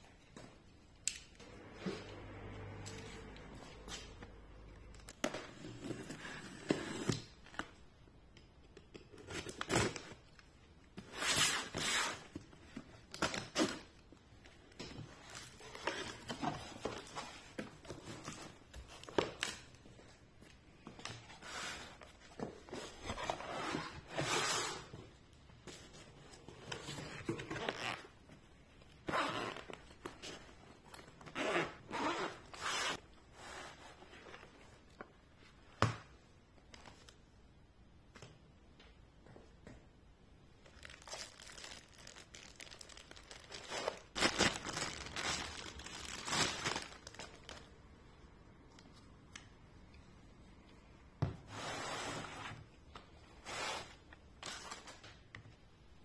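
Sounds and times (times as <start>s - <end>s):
zipper pulled open: 29.1s - 29.7s, 31.3s - 33.0s
cardboard packaging handled: 40.8s - 47.7s.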